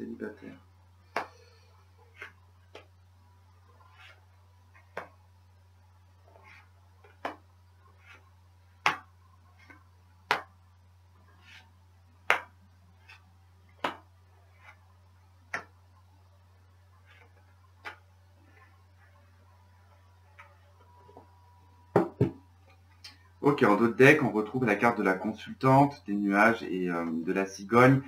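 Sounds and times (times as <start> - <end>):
cards tapping on a table: 4.9 - 5.1, 6.5 - 7.4.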